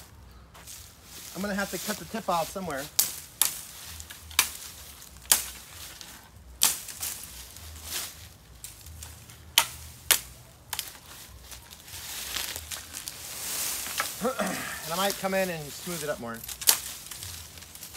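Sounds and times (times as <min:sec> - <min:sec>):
bamboo branches snapping: 0:02.8 - 0:17.9.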